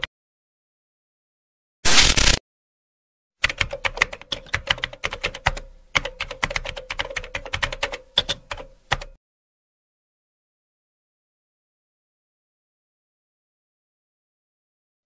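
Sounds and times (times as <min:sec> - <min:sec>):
burst of static noise: 0:01.8 - 0:02.4
keyboard typing clicks: 0:03.4 - 0:09.2.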